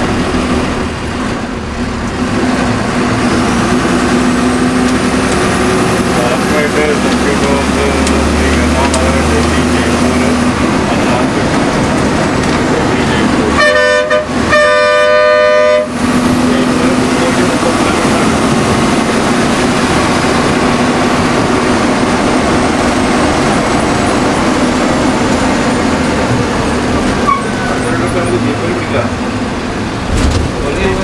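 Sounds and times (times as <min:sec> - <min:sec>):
road and engine noise: 0:00.0 - 0:31.0
vehicle horn honking: 0:13.5 - 0:16.0, 0:27.2 - 0:27.6.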